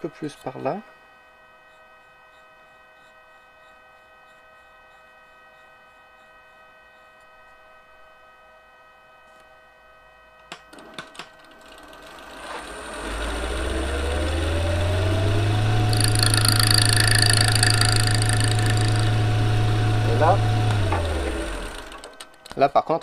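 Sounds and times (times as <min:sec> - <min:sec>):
wood lathe motor whine: 0:11.5 - 0:22.3
low hum: 0:13.6 - 0:21.9.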